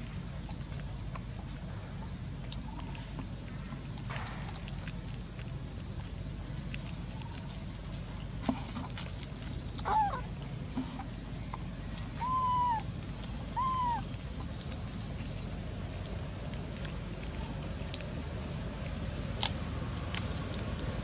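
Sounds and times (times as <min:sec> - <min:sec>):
short animal calls: 0:09.8 - 0:10.3, 0:12.2 - 0:14.1.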